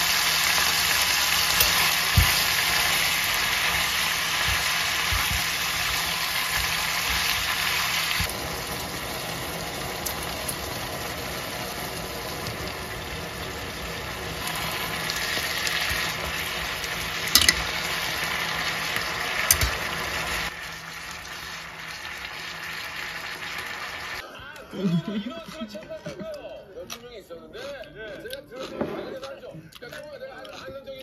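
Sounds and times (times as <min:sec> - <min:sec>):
food sizzling in a frying pan: 0:00.0 - 0:24.2
utensil clinking against pan: 0:17.3 - 0:17.7, 0:19.5 - 0:19.8.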